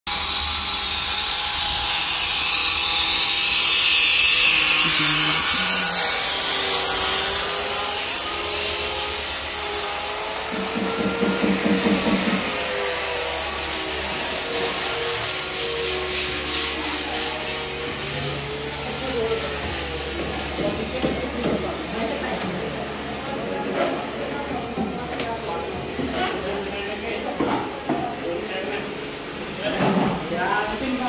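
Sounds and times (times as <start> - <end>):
power tool hissing: 0.1 - 21.0.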